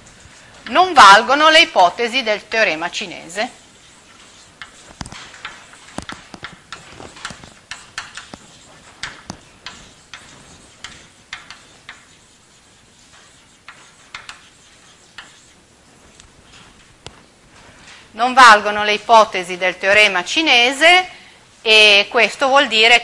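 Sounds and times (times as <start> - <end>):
chalk tapping and scraping on blackboard: 3.0 - 17.3.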